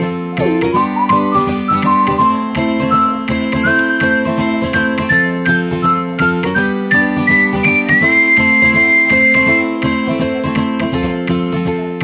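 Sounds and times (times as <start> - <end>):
whistle-like melody with beat: 0.1 - 11.2.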